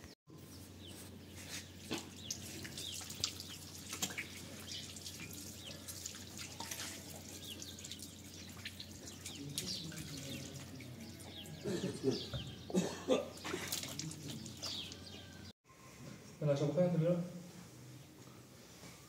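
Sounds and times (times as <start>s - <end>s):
water dripping on tiled floor: 2.2s - 10.7s
water pouring from plastic jug: 2.2s - 11.0s, 13.4s - 14.9s.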